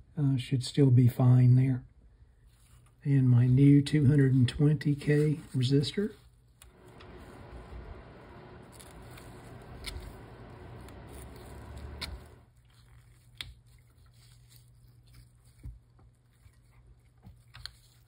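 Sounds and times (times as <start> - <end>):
rustling of gloved hands: 2.4 - 18.0
steady low hum: 6.6 - 12.6.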